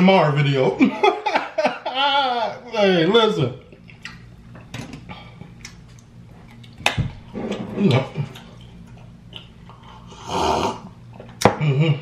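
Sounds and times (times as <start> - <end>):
chewing and wet mouth noises: 3.6 - 4.7, 5.3 - 7.0, 7.9 - 10.1
slurp from a mug: 9.9 - 10.9.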